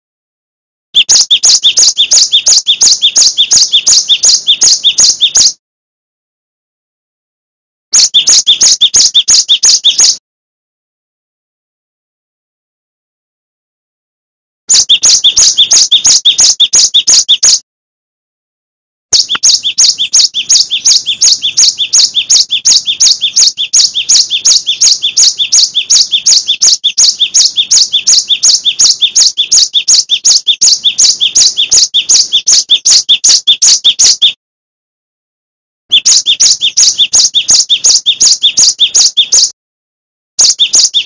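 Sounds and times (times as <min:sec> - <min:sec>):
bird singing high repeated notes: 0:01.0 - 0:05.6, 0:07.9 - 0:10.2, 0:14.7 - 0:17.6, 0:19.1 - 0:34.4, 0:35.9 - 0:39.6, 0:40.4 - 0:41.0.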